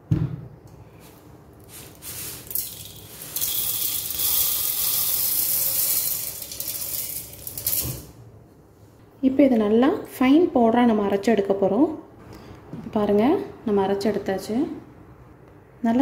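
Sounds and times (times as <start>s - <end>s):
dry grains poured into metal jar: 1.7s - 8.1s.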